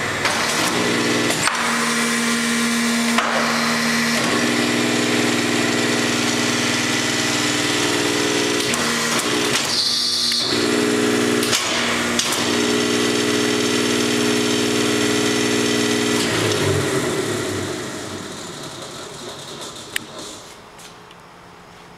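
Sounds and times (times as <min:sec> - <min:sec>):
hydraulic power unit humming: 0:00.0 - 0:21.8.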